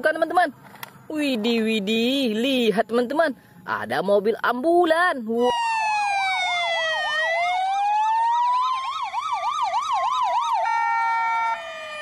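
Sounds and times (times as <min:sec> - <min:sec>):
siren fast warble: 0:05.4 - 0:12.0
siren slow wail: 0:05.4 - 0:12.0.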